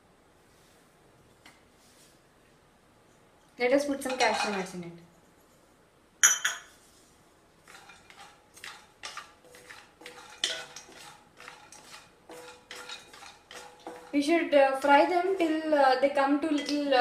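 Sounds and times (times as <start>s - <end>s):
wooden spatula scraping pan: 3.9s - 4.8s, 6.9s - 17.0s
metal clink: 6.2s - 6.7s.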